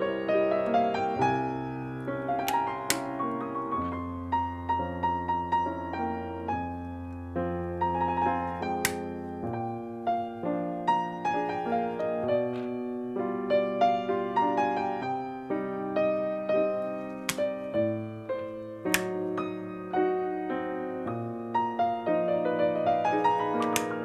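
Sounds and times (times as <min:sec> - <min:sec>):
solo piano music: 0:00.0 - 0:24.0
key switches clicking into plate: 0:23.6 - 0:24.0.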